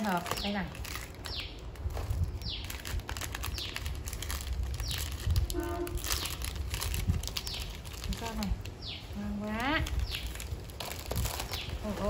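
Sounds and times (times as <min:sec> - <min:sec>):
small bird chirping: 0:00.0 - 0:01.6, 0:02.2 - 0:04.0, 0:04.7 - 0:05.4, 0:07.3 - 0:10.5, 0:11.2 - 0:12.0
boxes and packaging being handled: 0:00.0 - 0:12.0.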